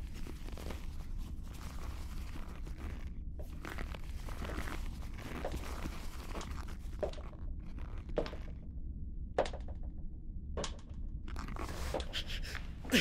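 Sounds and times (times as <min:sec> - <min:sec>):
rustling and scuffling: 0:00.0 - 0:08.5
low steady hum: 0:00.0 - 0:13.0.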